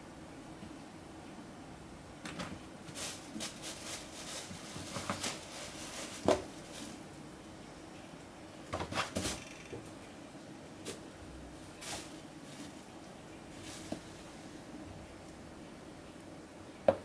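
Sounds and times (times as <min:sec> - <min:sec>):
kittens scratching and rustling: 0:02.5 - 0:07.1, 0:08.7 - 0:09.6, 0:10.8 - 0:14.6.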